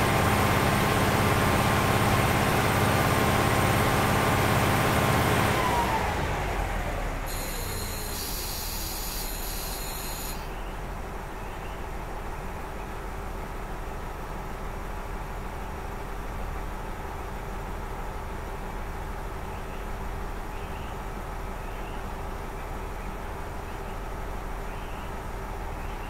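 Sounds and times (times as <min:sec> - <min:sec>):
diesel engine revving: 0:00.0 - 0:10.6
steady high hiss: 0:07.3 - 0:10.5.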